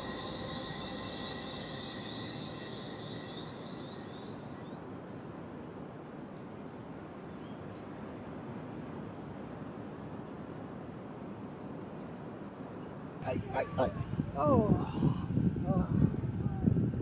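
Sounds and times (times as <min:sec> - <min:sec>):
high-pitched ringing: 0:00.0 - 0:05.0
steady rushing hiss: 0:00.0 - 0:05.4.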